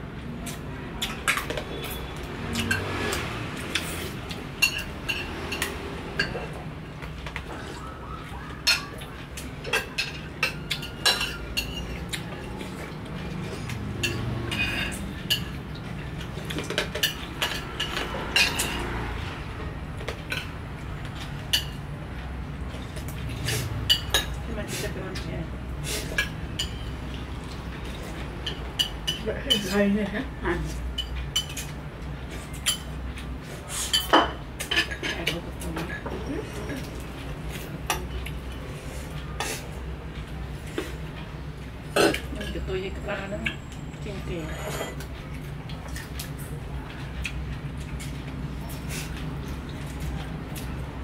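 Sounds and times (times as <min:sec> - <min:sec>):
spoons clinking on ceramic bowls: 0:09.6 - 0:12.0.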